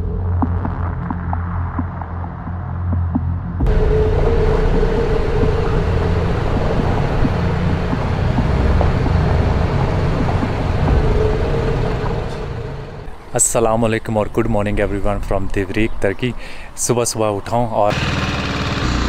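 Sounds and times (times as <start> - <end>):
motorcycle engine drone: 3.0 - 14.9, 17.8 - 19.0
road noise: 3.6 - 19.0.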